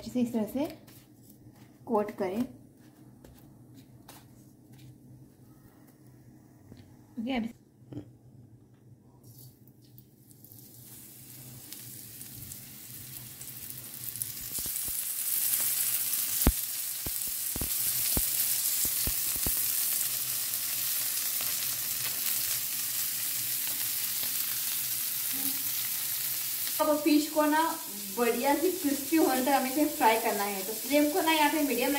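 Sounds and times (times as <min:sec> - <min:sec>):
fish sizzling in hot oil: 0:10.0 - 0:31.9.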